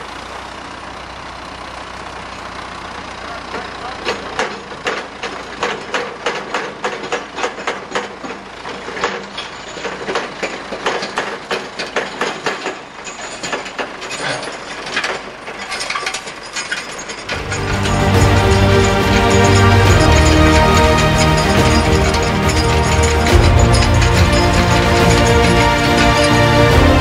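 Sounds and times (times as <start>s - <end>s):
metallic clicking and rattling: 3.5s - 27.0s.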